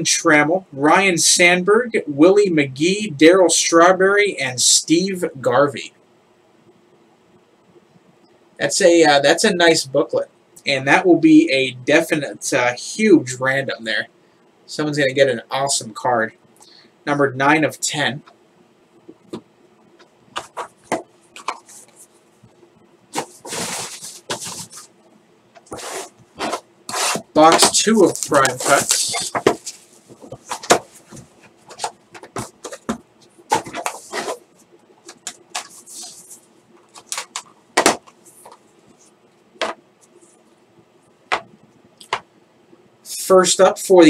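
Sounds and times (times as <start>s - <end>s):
cardboard scraping and rustling: 23.1s - 24.9s, 25.6s - 38.6s.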